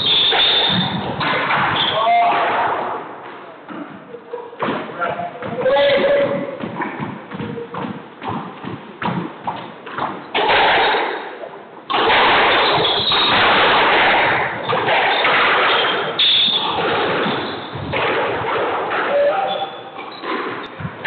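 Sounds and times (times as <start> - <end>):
squash ball knocks: 0.0 - 11.2.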